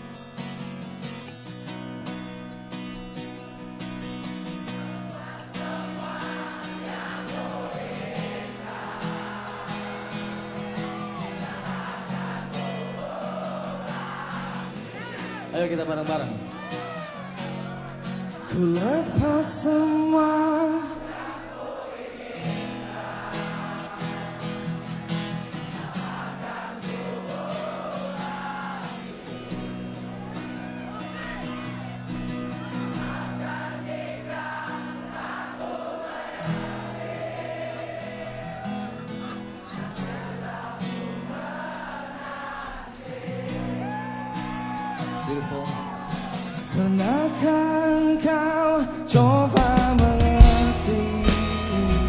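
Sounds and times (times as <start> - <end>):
crowd singing along: 0.8 - 52.0
lead voice singing: 4.5 - 52.0
live band playing pop-rock: 49.1 - 52.0.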